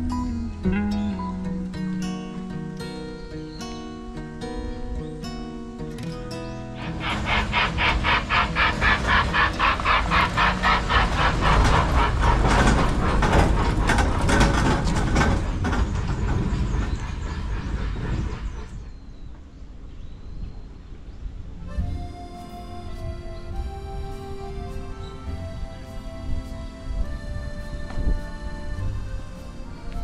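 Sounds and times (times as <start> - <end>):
train wheels clattering over rails: 6.8 - 19.5.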